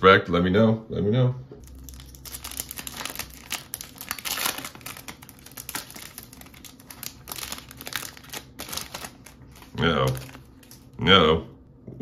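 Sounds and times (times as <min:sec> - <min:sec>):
foil wrapper crinkling and tearing: 0:01.6 - 0:11.0.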